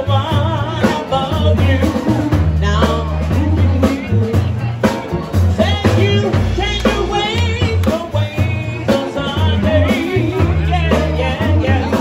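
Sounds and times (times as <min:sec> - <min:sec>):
bass line: 0:00.0 - 0:12.0
drums: 0:00.0 - 0:12.0
electric guitar: 0:00.0 - 0:12.0
woman singing lead vocals: 0:05.6 - 0:12.0.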